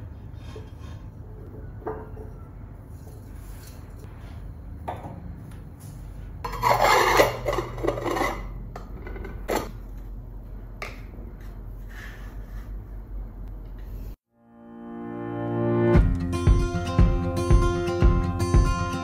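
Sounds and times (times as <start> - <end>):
mirror base scraping on stone: 6.4 - 8.7.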